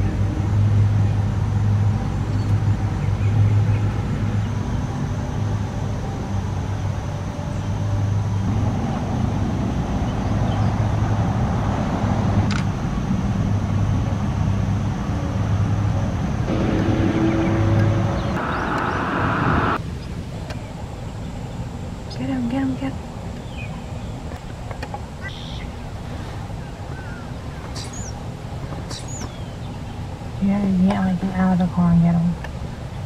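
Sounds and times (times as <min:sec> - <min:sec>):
car engine idling: 0:16.5 - 0:19.8.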